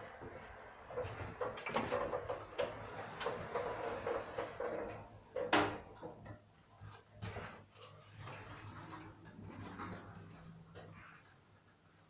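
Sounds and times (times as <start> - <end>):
lift doors rattling and knocking: 0.9 - 6.2.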